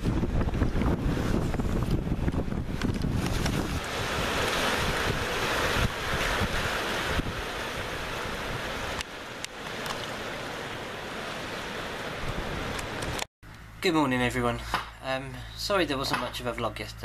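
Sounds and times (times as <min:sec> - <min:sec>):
wind buffeting microphone: 0:00.0 - 0:10.7
surf washing up concrete slipway: 0:00.0 - 0:13.3.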